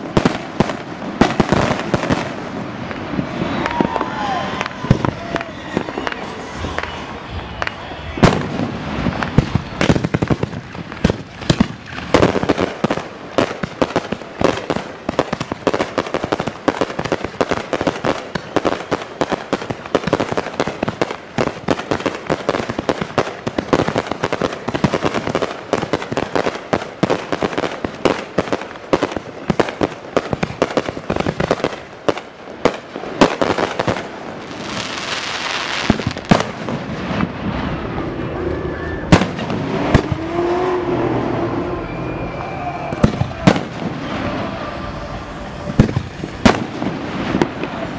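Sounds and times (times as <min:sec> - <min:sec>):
fireworks crackling pops: 0:00.0 - 0:40.5, 0:42.1 - 0:47.9
fireworks bangs: 0:00.0 - 0:47.9.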